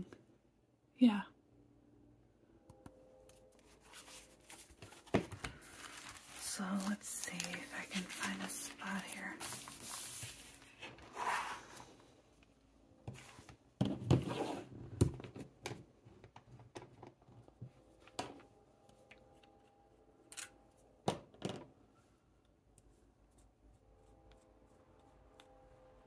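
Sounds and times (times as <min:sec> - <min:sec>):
notebook page rustling: 0:03.6 - 0:12.0.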